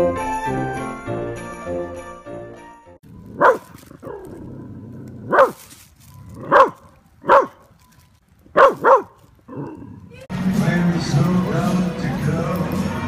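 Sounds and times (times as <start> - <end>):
dog barking: 3.4 - 4.4, 5.2 - 5.7, 6.4 - 7.7, 8.5 - 9.9.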